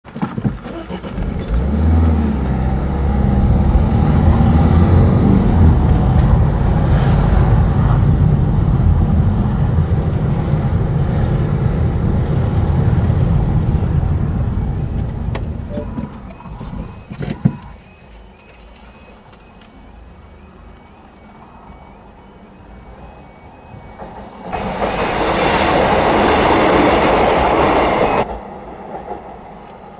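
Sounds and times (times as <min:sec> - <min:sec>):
car engine and tyre drone: 0:00.6 - 0:29.9
level crossing warning alarm: 0:18.8 - 0:25.5.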